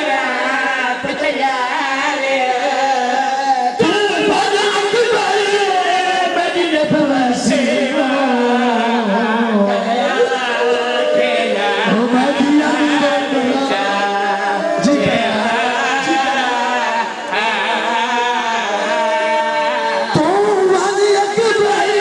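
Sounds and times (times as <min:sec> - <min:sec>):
men chanting a mourning lament: 0:00.0 - 0:22.0.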